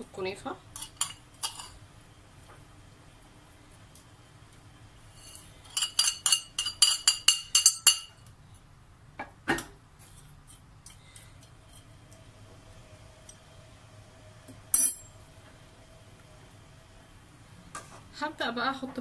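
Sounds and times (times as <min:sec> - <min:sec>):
metallic clinks on baking tray: 0:05.8 - 0:08.2.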